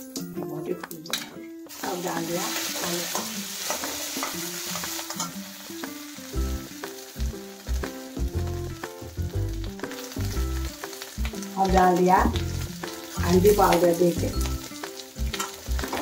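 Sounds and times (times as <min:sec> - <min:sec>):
potato sizzling in hot oil: 0:01.7 - 0:16.0
spatula knocking and scraping pan: 0:03.1 - 0:05.4.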